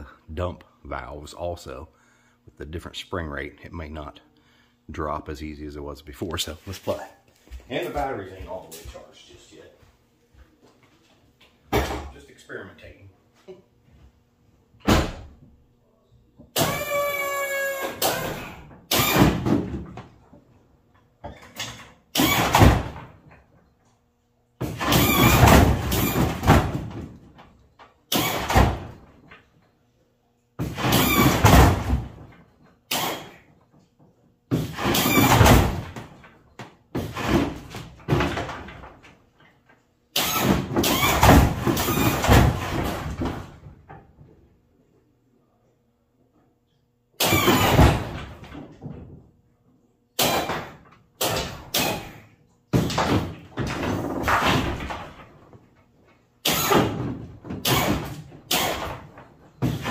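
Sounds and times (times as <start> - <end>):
hydraulic pump motors whirring: 16.6 - 19.5, 40.2 - 43.1, 57.6 - 59.9.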